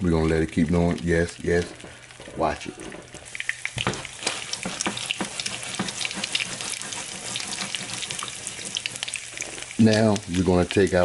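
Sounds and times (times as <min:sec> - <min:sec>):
eggs sizzling with pops and crackles: 0:00.0 - 0:11.0.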